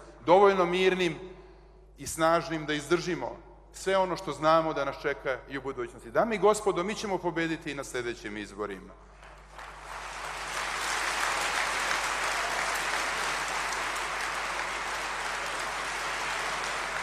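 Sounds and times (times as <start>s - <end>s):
large audience applauding: 9.2s - 17.0s.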